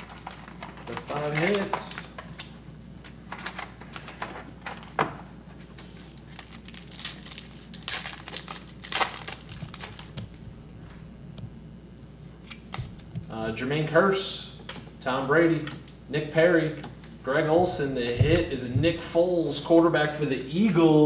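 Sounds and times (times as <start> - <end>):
wrapper tearing and crinkling: 0.0 - 2.4, 5.8 - 10.3.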